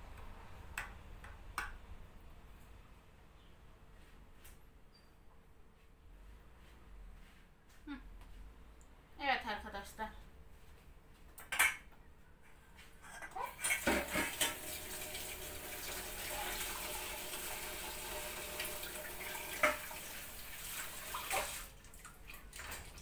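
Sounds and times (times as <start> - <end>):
dishes clinking: 11.4 - 11.9
kitchen tap running: 13.4 - 23.0.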